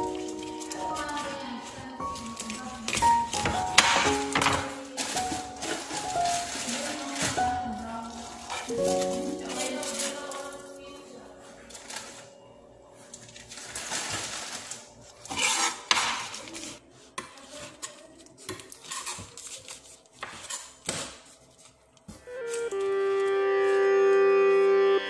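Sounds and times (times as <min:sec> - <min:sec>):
knife scraping: 0:15.2 - 0:21.8.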